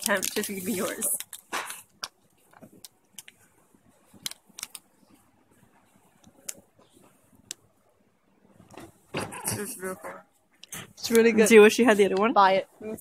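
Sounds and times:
plastic wrapper crinkling: 0.0 - 3.3.

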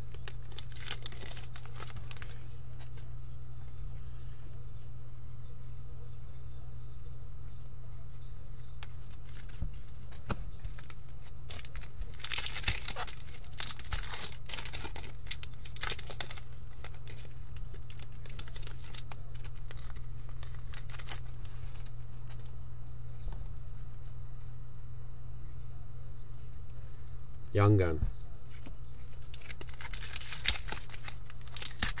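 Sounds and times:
foil wrapper crinkling and tearing: 0.0 - 2.4, 10.6 - 22.0, 28.6 - 32.0.

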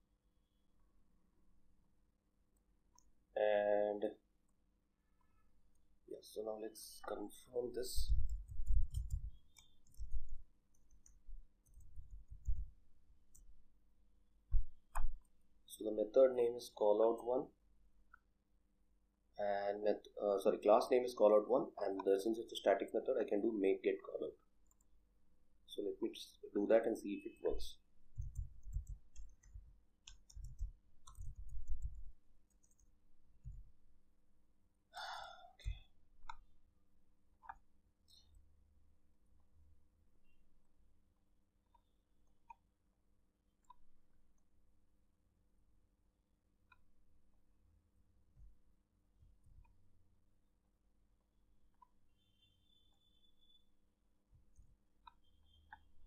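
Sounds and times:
computer keyboard typing: 7.9 - 13.5, 27.5 - 33.7.

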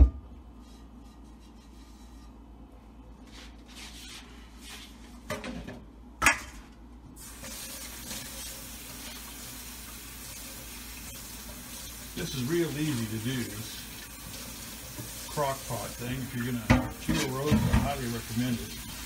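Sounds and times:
kitchen tap running: 7.2 - 19.0.

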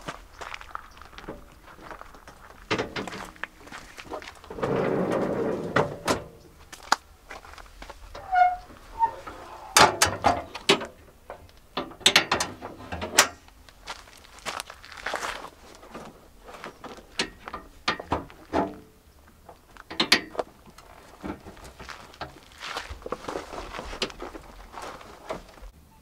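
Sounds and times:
rustle: 0.0 - 25.7
short squeak: 8.2 - 9.8.

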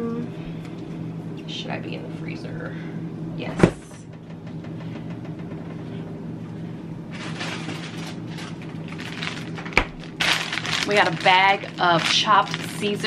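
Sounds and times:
steady low hum: 0.0 - 13.0
plastic packaging rustling: 7.1 - 13.0.

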